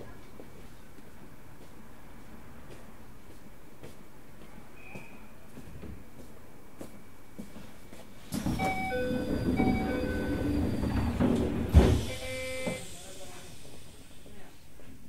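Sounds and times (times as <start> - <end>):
train doors sliding open: 8.3 - 13.6
two-note door chime: 8.6 - 10.5.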